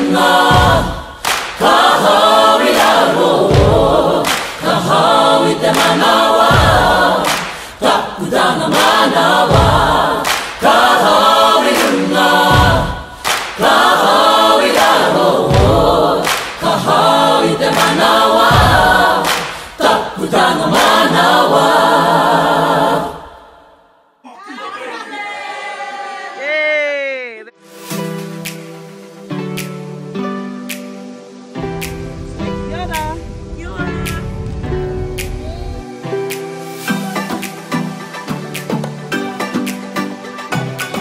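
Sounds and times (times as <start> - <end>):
choir singing: 0.0 - 26.5, 31.5 - 38.6
deep beat: 0.3 - 2.1, 2.7 - 7.4, 8.8 - 10.8, 12.4 - 14.1, 15.4 - 17.1, 17.7 - 19.4, 31.6 - 35.8.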